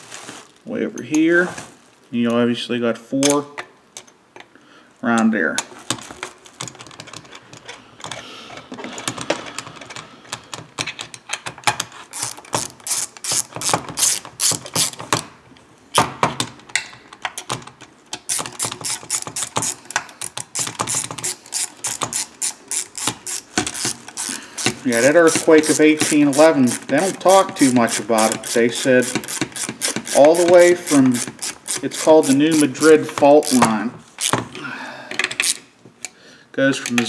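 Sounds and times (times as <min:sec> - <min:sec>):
ratchet wrench clicking: 0:12.1 - 0:15.0, 0:18.2 - 0:34.4, 0:35.2 - 0:35.6.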